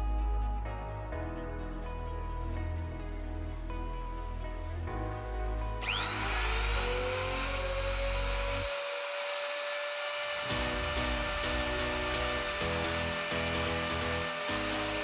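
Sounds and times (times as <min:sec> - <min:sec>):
background music: 0:00.0 - 0:08.8, 0:10.2 - 0:15.0
router spindle high whine: 0:05.8 - 0:15.0.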